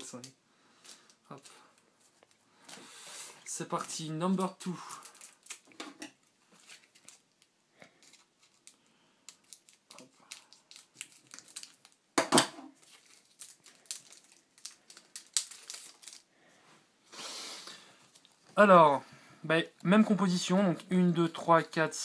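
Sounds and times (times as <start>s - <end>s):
foil and plastic crinkling: 3.7s - 5.7s, 6.4s - 12.0s, 12.8s - 16.3s.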